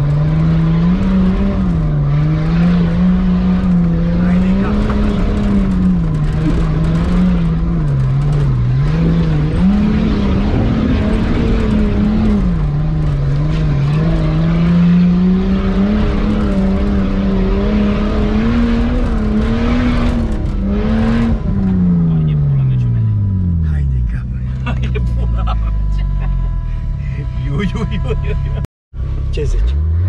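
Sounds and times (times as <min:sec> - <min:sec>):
car engine running from inside cab: 0:00.0 - 0:30.0.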